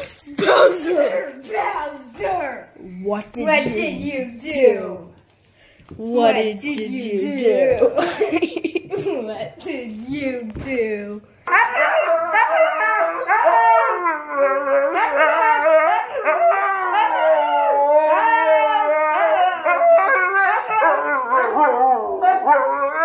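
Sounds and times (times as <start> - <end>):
dog howling: 11.5 - 23.0.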